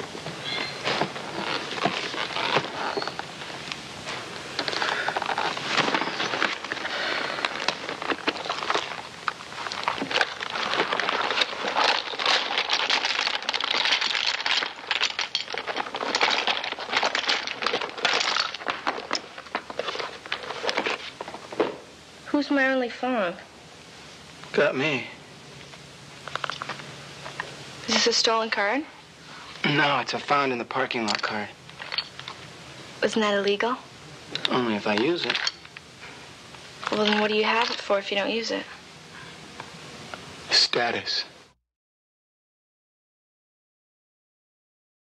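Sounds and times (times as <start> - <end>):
paper rustling and crinkling: 0.5 - 21.8
small objects clicking and knocking: 4.6 - 21.8, 26.2 - 27.5, 31.0 - 32.4, 34.4 - 35.8.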